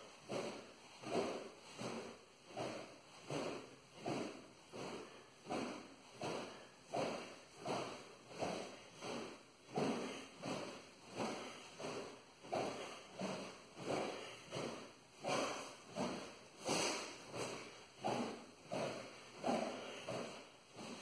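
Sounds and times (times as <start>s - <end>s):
sword blade swishing: 9.8s - 21.0s.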